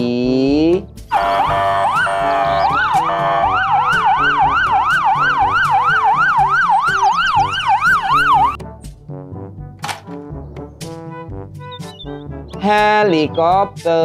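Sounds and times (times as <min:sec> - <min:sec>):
police siren yelping: 0:01.1 - 0:08.6.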